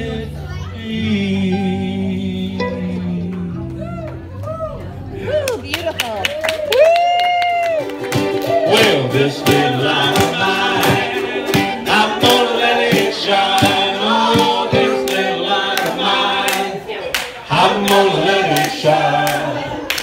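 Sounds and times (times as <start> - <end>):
group of voices singing: 0.0 - 3.8, 8.2 - 20.0
hand clapping on a beat: 5.7 - 20.0.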